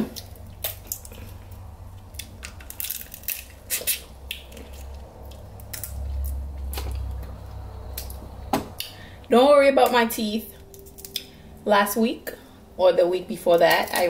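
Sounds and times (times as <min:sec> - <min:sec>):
crab shell cracking: 0:00.1 - 0:07.1, 0:10.6 - 0:11.4.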